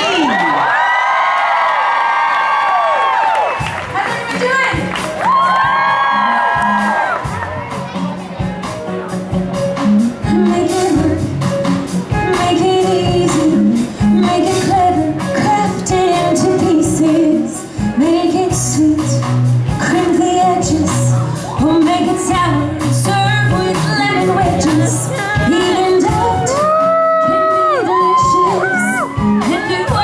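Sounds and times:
live band playing: 3.2s - 30.0s
woman singing into microphone: 10.2s - 11.4s, 12.2s - 30.0s.

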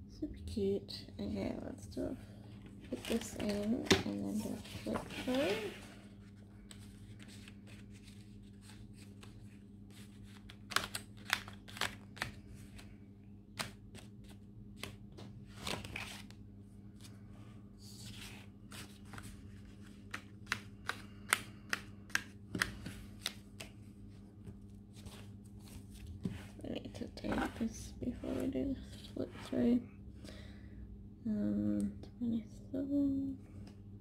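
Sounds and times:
steady low hum: 0.0s - 34.0s
paper pages rustling: 2.8s - 12.9s, 13.6s - 16.4s, 18.0s - 21.0s, 22.5s - 26.6s.

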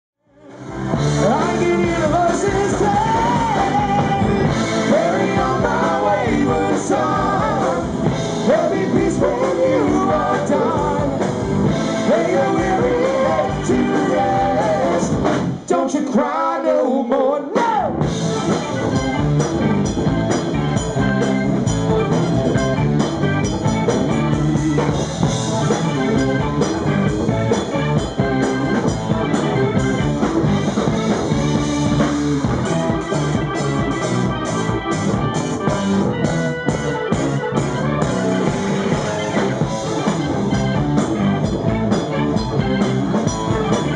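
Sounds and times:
live rock band playing: 0.3s - 15.9s, 17.4s - 43.9s
man singing lead vocals: 1.1s - 18.1s.

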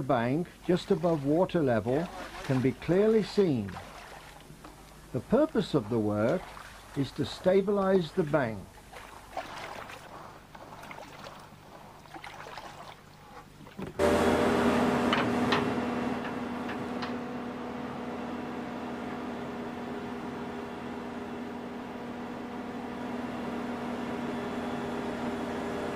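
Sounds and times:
splashing in water: 0.4s - 13.9s
excavator engine: 13.9s - 25.9s.

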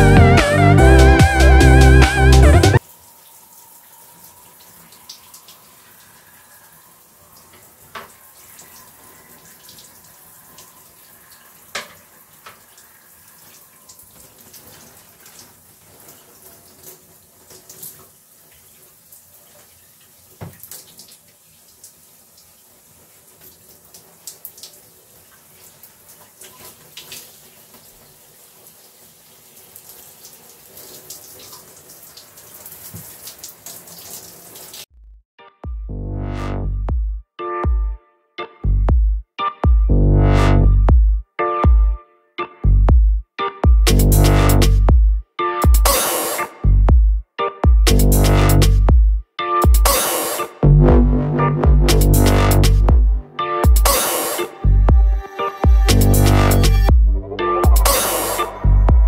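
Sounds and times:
shower water spraying: 1.0s - 34.9s, 45.9s - 46.6s, 49.9s - 50.6s, 53.6s - 54.7s, 57.7s - 58.7s
taps and splashes: 20.4s - 21.9s, 32.7s - 34.2s.

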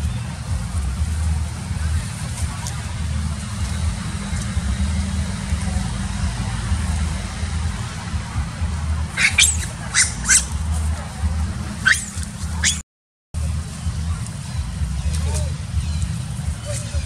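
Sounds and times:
steady low rumble: 0.0s - 12.8s, 13.4s - 17.0s
macaques squealing: 9.1s - 10.6s, 11.8s - 12.8s.

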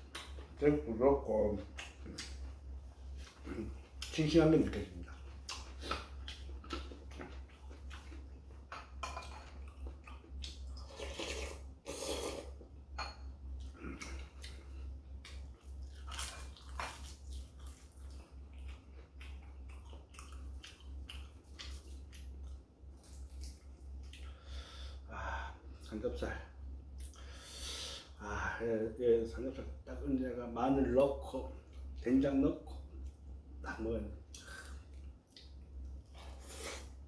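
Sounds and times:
steady low hum: 0.0s - 37.0s
person chewing: 5.0s - 12.7s, 13.6s - 24.4s, 34.3s - 37.0s.

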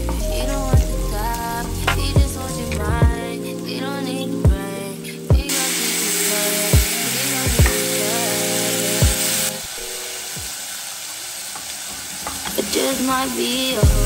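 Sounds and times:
food frying in hot oil: 0.0s - 3.2s, 5.4s - 14.0s
hip-hop music with deep bass: 0.0s - 9.6s, 12.5s - 14.0s.

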